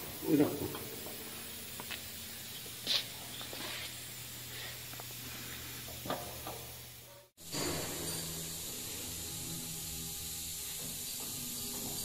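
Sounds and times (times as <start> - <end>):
even hiss: 0.0 - 12.0.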